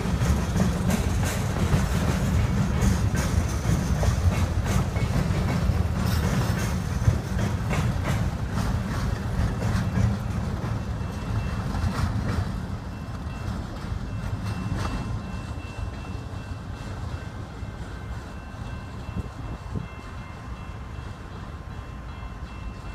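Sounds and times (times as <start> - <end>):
wheels clicking over rail joints: 0.0 - 17.0
freight train rumble: 0.0 - 22.9.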